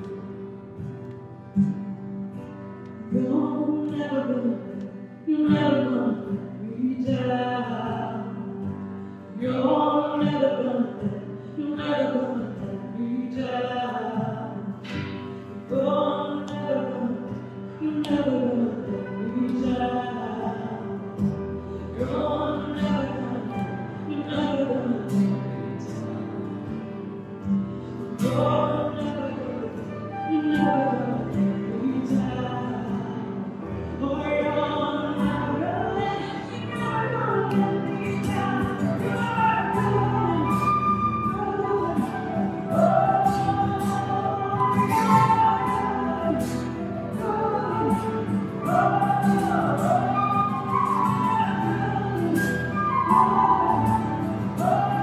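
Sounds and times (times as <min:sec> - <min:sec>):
woman singing: 0:03.0 - 0:55.0
flute playing: 0:35.1 - 0:55.0.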